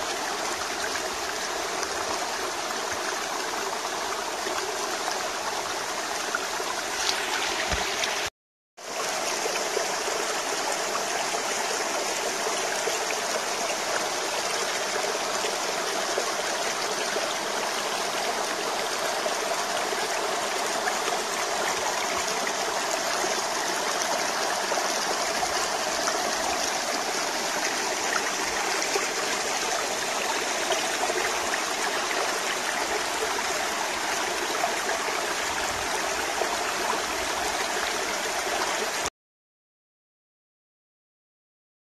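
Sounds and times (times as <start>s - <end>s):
brook running over stones: 6.4s - 8.3s.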